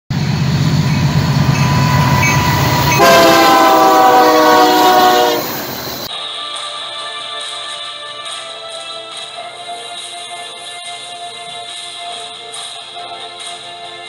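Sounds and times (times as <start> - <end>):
diesel locomotive engine rumble: 0.1 - 6.1
multi-tone train air horn: 0.3 - 6.1.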